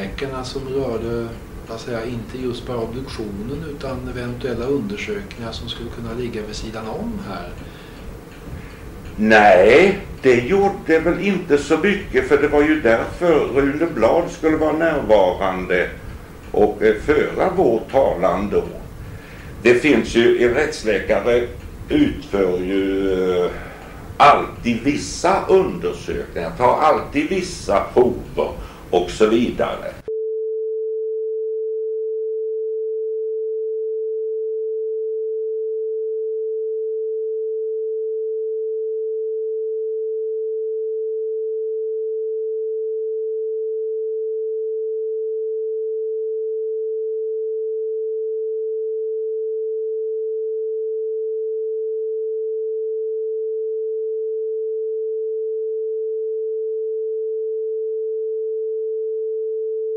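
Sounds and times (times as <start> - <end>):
person speaking: 0.0 - 7.7, 9.1 - 19.0, 19.6 - 30.1.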